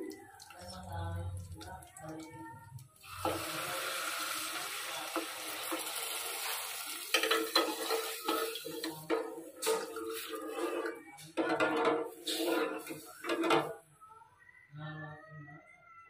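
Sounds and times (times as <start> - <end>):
milk pouring into a pot: 0.0 - 11.0.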